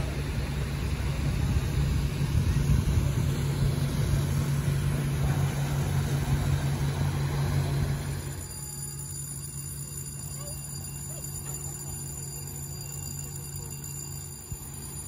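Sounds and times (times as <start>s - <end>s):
boat diesel engine humming: 0.0s - 15.0s.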